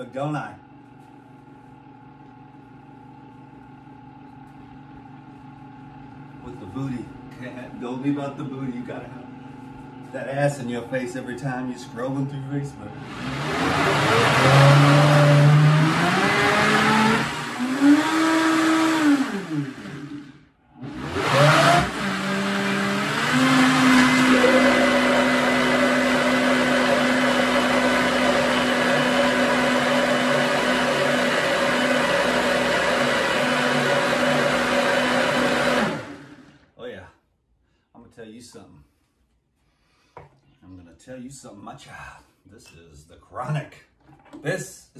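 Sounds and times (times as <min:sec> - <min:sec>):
countertop blender running: 0:11.8 - 0:36.7.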